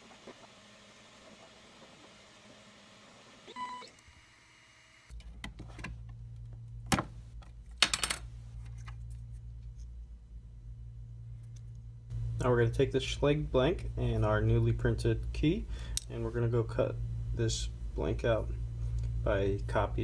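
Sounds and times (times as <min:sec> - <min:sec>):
steady low hum: 0:05.1 - 0:20.0.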